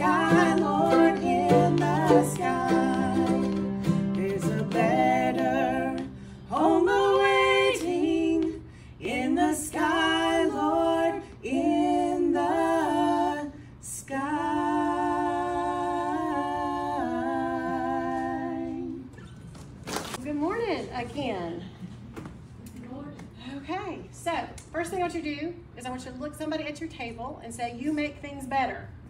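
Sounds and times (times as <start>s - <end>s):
women singing in harmony: 0.0s - 19.2s.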